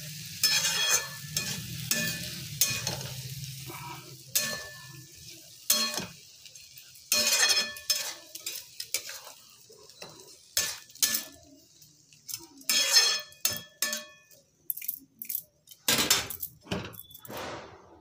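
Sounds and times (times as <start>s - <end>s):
metal spatula scraping a pan: 0.0s - 14.4s.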